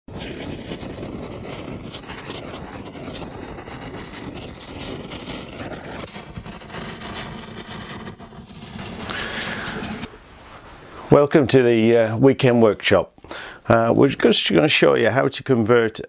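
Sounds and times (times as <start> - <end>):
dense rushing noise with crackle: 0.1 - 11.9.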